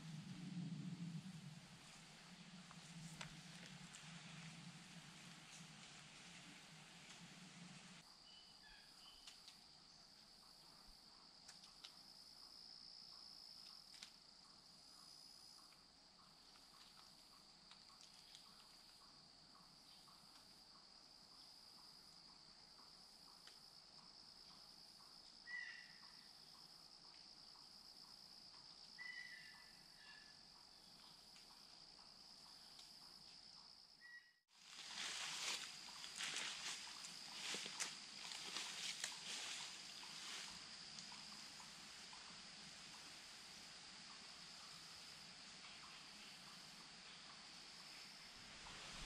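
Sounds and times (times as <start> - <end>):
crickets trilling: 0.0 - 49.0.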